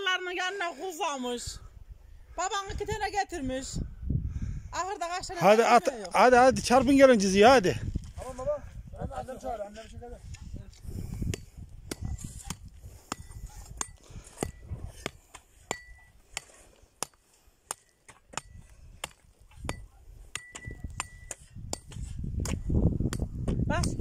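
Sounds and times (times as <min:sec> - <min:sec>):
low wind rumble: 0:01.5 - 0:05.4, 0:06.2 - 0:16.2, 0:18.4 - 0:24.0
hand hoe chopping soil: 0:11.2 - 0:24.0.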